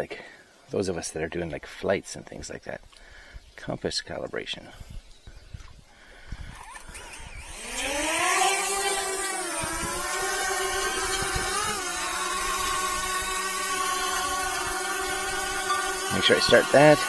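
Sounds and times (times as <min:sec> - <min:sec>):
drone propellers buzzing: 0:06.4 - 0:17.0.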